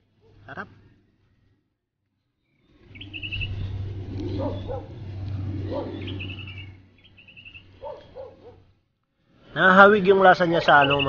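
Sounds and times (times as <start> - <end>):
low steady rumble: 0.0 - 11.0
bird trilling: 2.4 - 8.7, 10.5 - 11.0
dog barking: 4.3 - 5.0, 5.7 - 6.0, 7.8 - 8.7.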